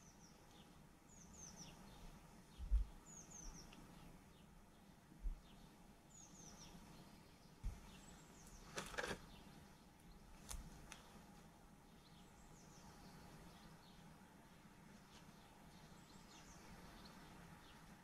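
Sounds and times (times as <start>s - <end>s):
small birds chirping: 0.0s - 18.0s
plastic pots rustling and clicking: 8.7s - 9.2s.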